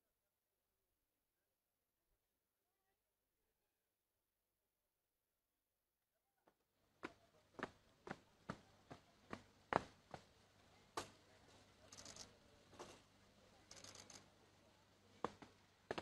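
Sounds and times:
boot heels on stone paving: 0:15.2 - 0:16.0.

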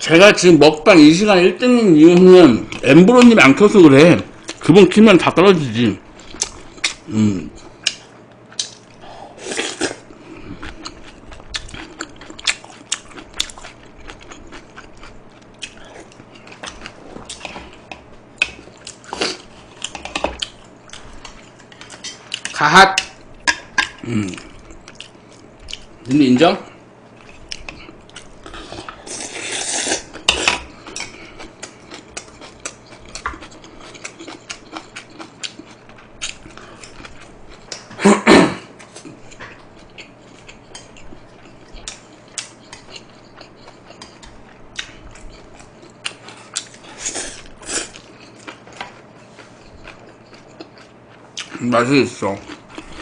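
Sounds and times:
chewing with mouth clicks: 0:06.2 - 0:26.1, 0:27.1 - 0:38.0, 0:38.8 - 0:53.0.

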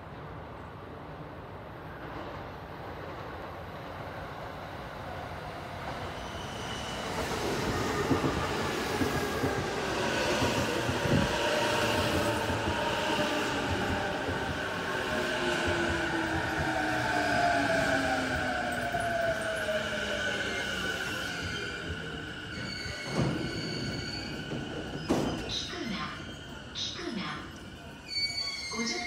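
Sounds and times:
train rumbling on rails: 0:00.0 - 0:29.0.

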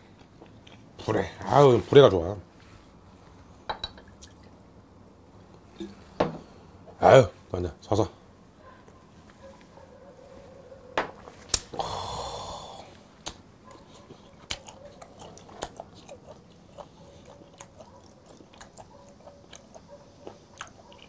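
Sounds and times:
person chewing: 0:00.1 - 0:00.9, 0:13.2 - 0:21.0
wheezy exhale: 0:11.7 - 0:13.0.

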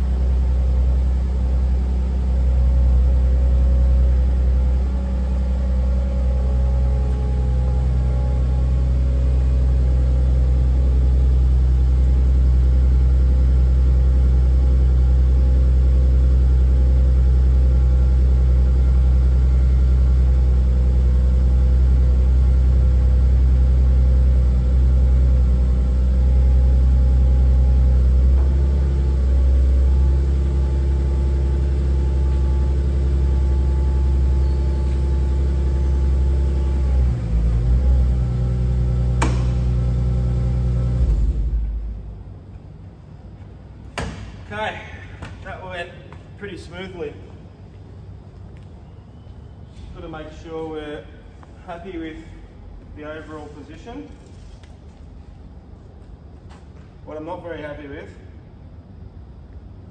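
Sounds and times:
forklift engine humming: 0:00.0 - 0:44.7.

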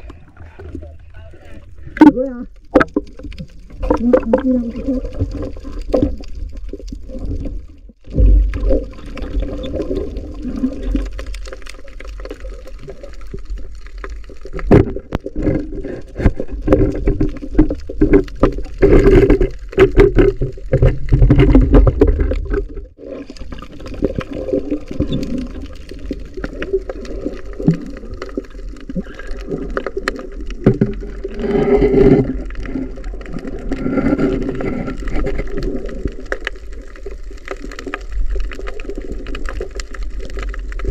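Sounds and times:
muffled underwater rushing: 0:00.0 - 0:40.9
underwater knocks and clicks: 0:01.8 - 0:40.9.

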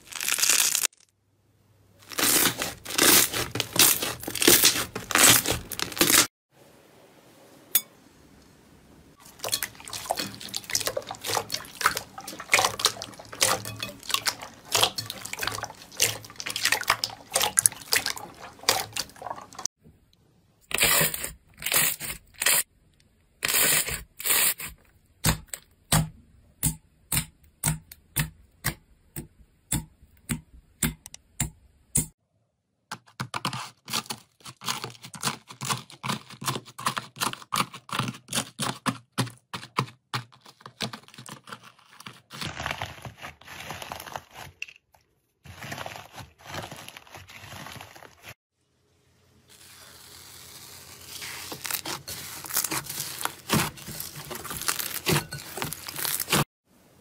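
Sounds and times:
slime squelching and crackling: 0:00.0 - 0:01.1, 0:02.0 - 0:06.3, 0:09.2 - 0:19.7, 0:33.9 - 0:48.4, 0:49.5 - 0:56.5.

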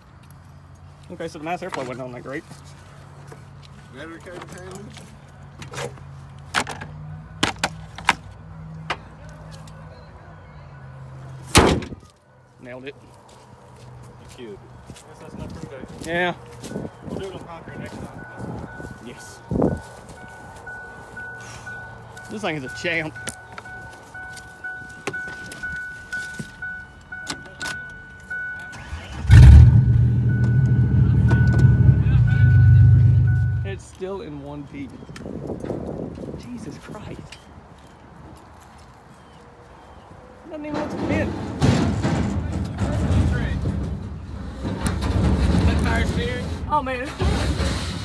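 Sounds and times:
dashboard warning chime: 0:16.7 - 0:29.2, 0:29.8 - 0:33.8
car engine cranking and idling: 0:22.1 - 0:33.8.

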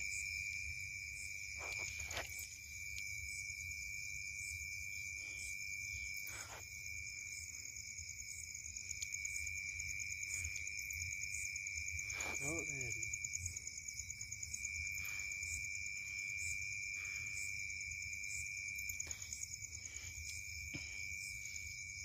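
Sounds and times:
crickets chirring: 0:00.0 - 0:22.0.

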